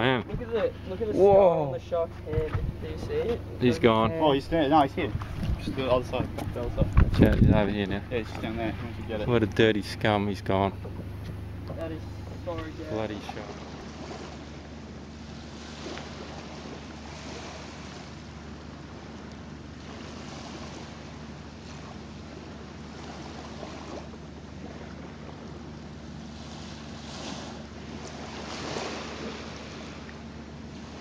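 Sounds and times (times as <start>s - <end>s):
small waves washing onto shore: 0.0s - 31.0s
steady low hum: 0.0s - 31.0s.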